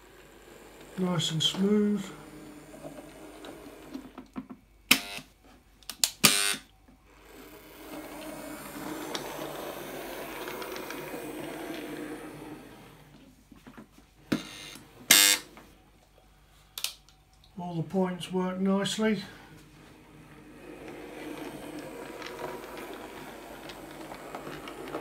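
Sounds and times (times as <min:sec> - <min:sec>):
model train motor running: 0:00.0 - 0:04.1, 0:07.1 - 0:13.1, 0:20.2 - 0:25.0
point motors buzzing clacks: 0:14.3 - 0:15.5.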